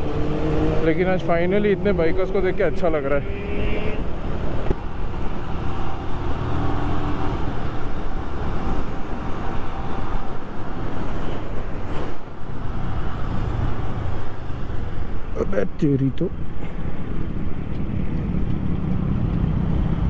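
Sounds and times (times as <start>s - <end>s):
wind rushing over microphone: 16.3s - 20.0s.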